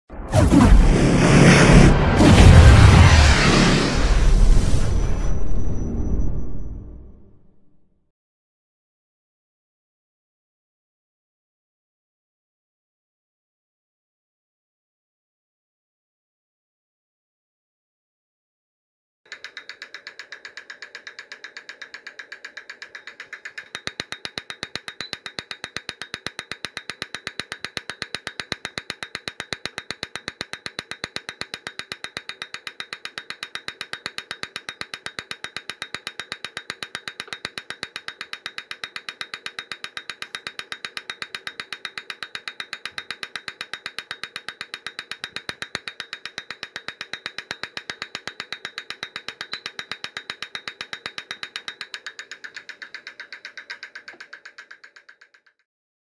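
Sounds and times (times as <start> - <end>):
fuel injector rapid clicking: 19.3 - 55.6.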